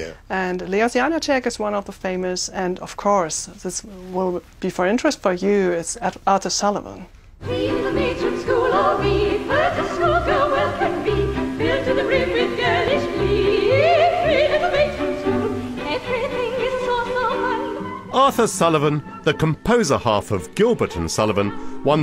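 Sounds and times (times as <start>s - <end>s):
instrumental accompaniment: 7.4s - 22.0s
operatic singing: 7.4s - 22.0s.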